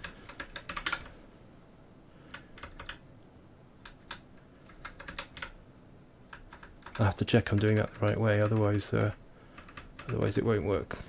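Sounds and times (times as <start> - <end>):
computer keyboard typing: 0.0 - 1.2, 2.3 - 3.0, 3.8 - 5.6, 6.3 - 10.5.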